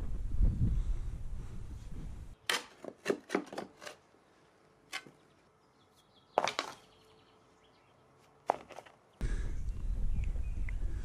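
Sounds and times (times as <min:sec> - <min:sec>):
spade digging into soil: 0:02.4 - 0:04.1.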